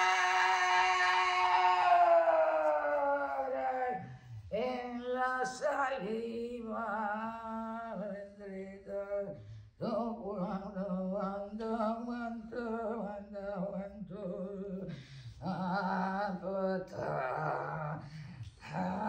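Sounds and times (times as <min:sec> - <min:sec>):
person singing long held notes: 0:00.0 - 0:06.1.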